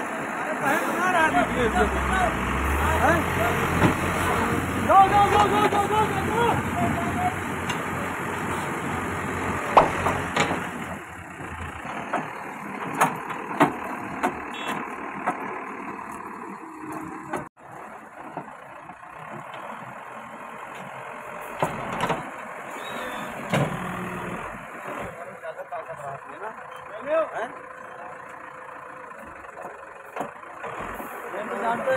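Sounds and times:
diesel engine running under load: 0:00.0 - 0:31.9.

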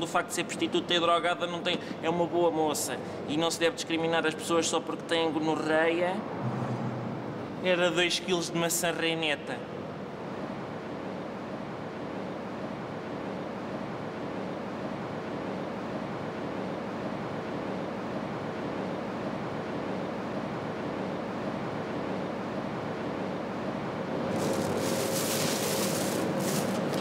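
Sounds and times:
indoor background hiss: 0:24.2 - 0:27.0.

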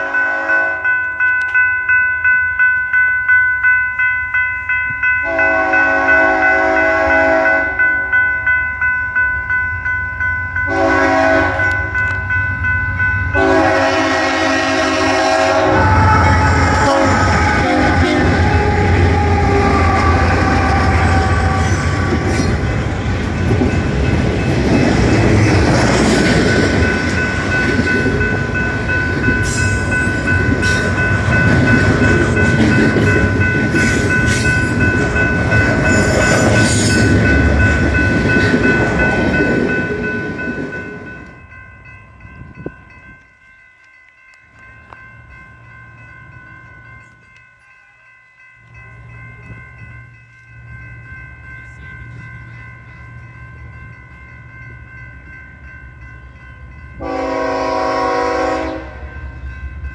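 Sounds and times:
locomotive air horn blasts: 0:00.0 - 0:00.8, 0:05.2 - 0:07.8, 0:10.7 - 0:12.0, 0:13.4 - 0:22.3, 0:57.0 - 0:59.2
crossing bell ringing: 0:00.0 - 0:59.9
train wheels rumbling on rails: 0:10.0 - 0:59.9.

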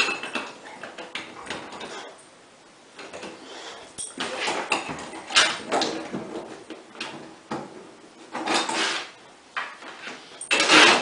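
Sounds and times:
dog claws scraping a door: 0:10.5 - 0:11.0.

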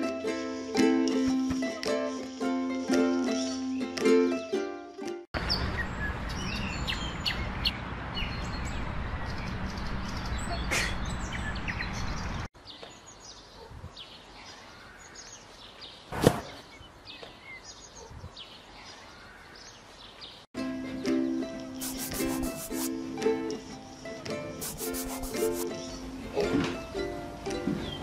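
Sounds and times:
ukulele music: 0:00.0 - 0:05.3, 0:20.6 - 0:28.0
small birds chirping: 0:05.4 - 0:20.5.

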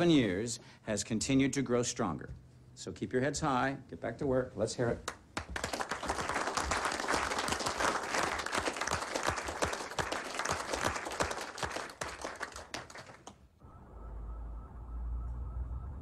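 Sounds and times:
people clapping and applauding: 0:05.0 - 0:13.4
low rumble: 0:13.6 - 0:16.0.

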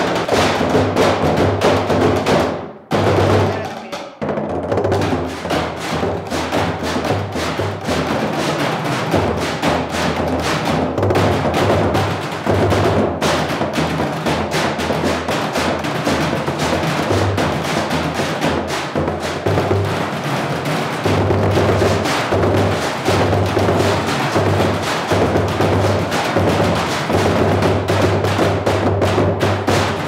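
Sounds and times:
drumline playing on trash cans: 0:00.0 - 0:30.0.

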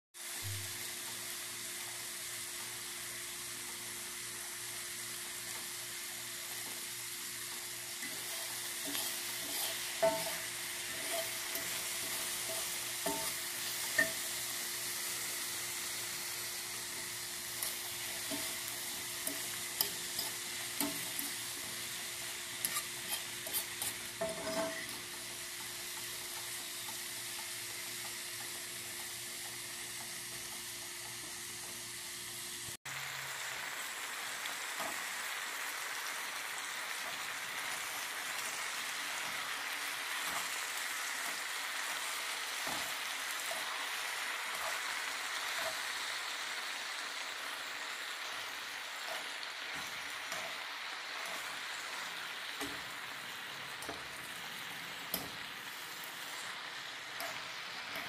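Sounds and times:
vegetables sizzling in a skillet: 0:00.2 - 0:58.0
metal fork scraping a pan: 0:08.0 - 0:14.3, 0:17.0 - 0:25.3, 0:49.0 - 0:50.6.

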